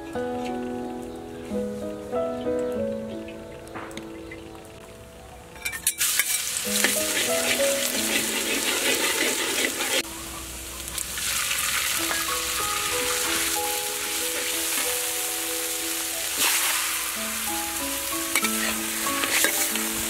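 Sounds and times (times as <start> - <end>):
soft background music: 0.0 - 6.0, 6.6 - 10.9, 11.7 - 20.0
metal ladle stirring in wok: 5.8 - 10.0, 18.3 - 19.7
garlic sizzling in hot oil: 5.8 - 20.0.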